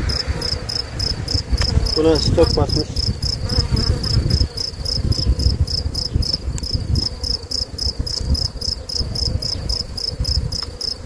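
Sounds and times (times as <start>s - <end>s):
bees buzzing: 0.0s - 11.0s
high insect chirp: 0.0s - 11.0s.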